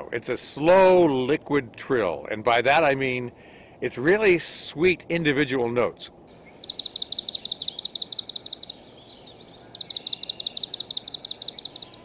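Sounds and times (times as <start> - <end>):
sparrow singing trills: 6.3 - 12.0.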